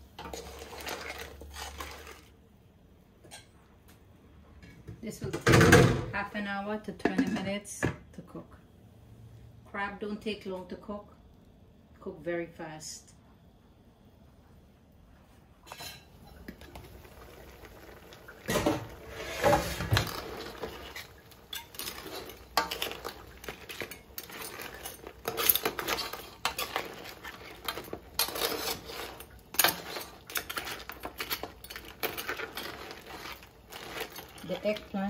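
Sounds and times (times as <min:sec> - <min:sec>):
metal spoon scraping a pot: 0:00.2 - 0:02.3, 0:18.5 - 0:35.0.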